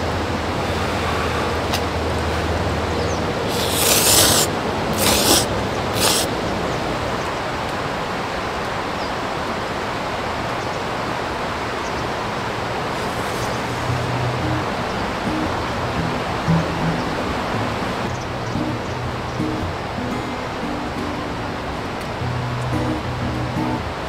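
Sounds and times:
stream rushing: 0:00.0 - 0:24.0
noisy slurps of noodles: 0:03.5 - 0:06.3, 0:12.9 - 0:14.0.

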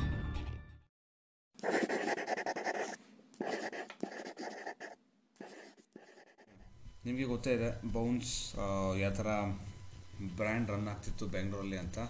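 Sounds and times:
pencil scratching on paper: 0:01.6 - 0:06.7.

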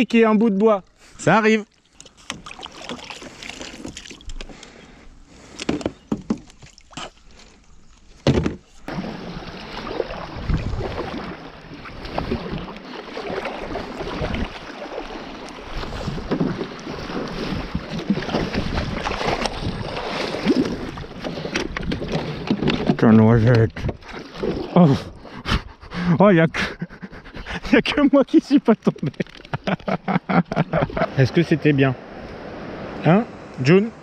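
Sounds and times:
paddle blades splashing: 0:00.3 - 0:25.4, 0:26.7 - 0:34.0
water washing along hull: 0:00.4 - 0:04.6, 0:08.1 - 0:25.8
knocks and rattles on kayak: 0:05.5 - 0:07.2, 0:08.1 - 0:25.8, 0:26.6 - 0:31.0.

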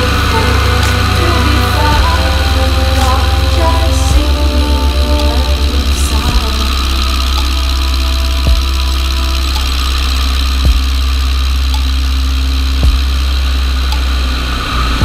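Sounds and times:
propeller plane engine droning: 0:00.0 - 0:15.0
sharp thumps: 0:10.4 - 0:12.1.

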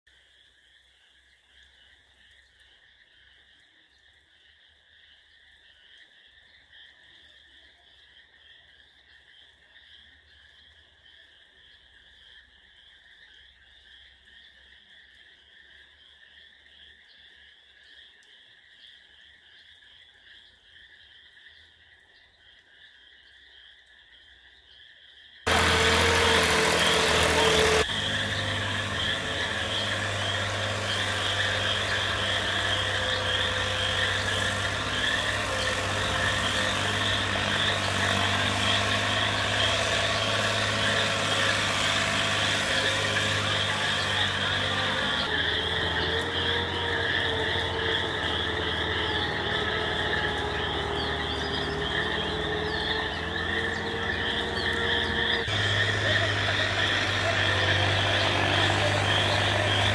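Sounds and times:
frogs calling: 0:00.1 - 0:59.9
insects trilling: 0:00.1 - 0:59.9
loud engine running: 0:25.5 - 0:59.9.

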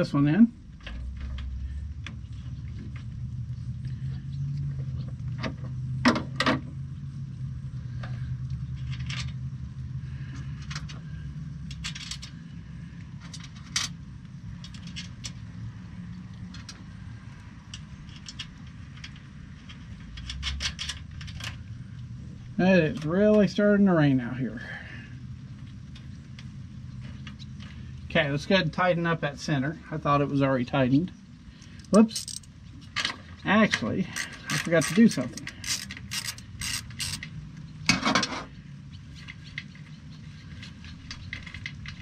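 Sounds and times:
steady low hum: 0:00.0 - 0:42.0
metallic clinks of bolts: 0:31.7 - 0:33.2.

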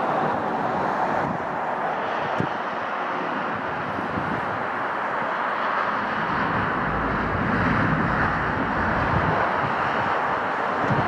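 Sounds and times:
jet engines: 0:00.0 - 0:11.0
deep rumble: 0:05.7 - 0:10.4.

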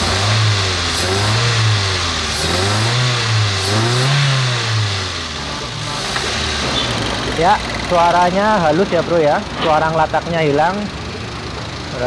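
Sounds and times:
car engine revving: 0:00.0 - 0:11.8.

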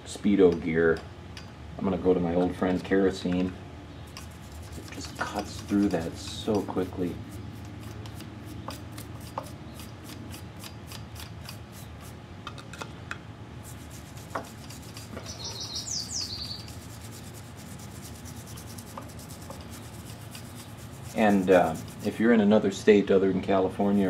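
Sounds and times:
small brush scrubbing metal: 0:04.0 - 0:12.2, 0:13.6 - 0:22.7, 0:23.7 - 0:24.0.

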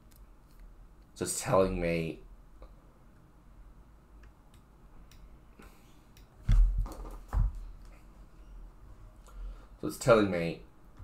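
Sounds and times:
low background hum: 0:00.0 - 0:11.0
dull thumps: 0:06.4 - 0:07.7.

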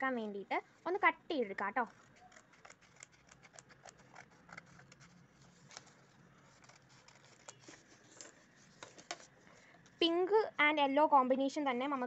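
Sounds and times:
scissors snipping paper: 0:01.9 - 0:08.9.

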